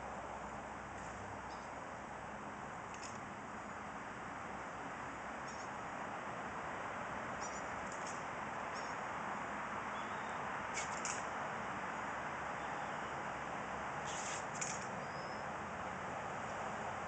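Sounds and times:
outdoor background hiss: 0:00.0 - 0:17.0
faint high-pitched chirps: 0:07.4 - 0:07.7, 0:09.9 - 0:10.4, 0:12.6 - 0:13.2, 0:14.9 - 0:15.5.

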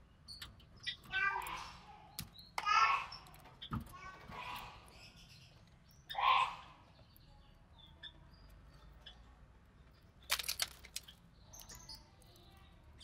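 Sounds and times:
scratchy rustling and clicking: 0:10.3 - 0:11.2.

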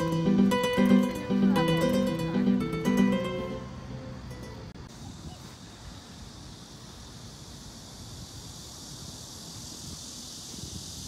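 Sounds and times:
steady high hiss: 0:00.0 - 0:11.0
wind rumbling on microphone: 0:04.7 - 0:11.0.

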